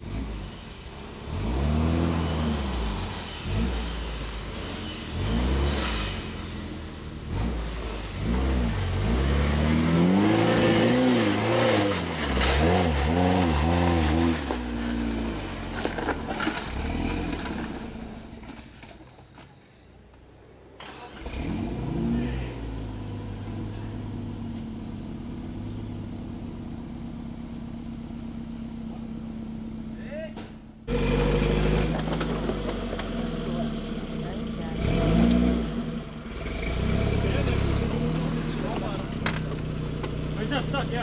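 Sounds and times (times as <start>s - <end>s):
engine revving hard: 1.2s - 6.5s, 7.2s - 15.2s, 20.8s - 23.3s, 30.9s - 32.2s, 33.1s - 39.2s.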